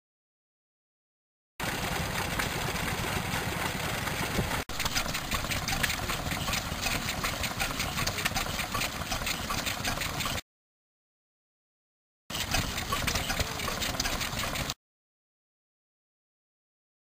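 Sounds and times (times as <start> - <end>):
engine sharp ticks: 1.6 - 10.4, 12.3 - 14.8
stationary engines running: 1.6 - 10.4, 12.3 - 14.8.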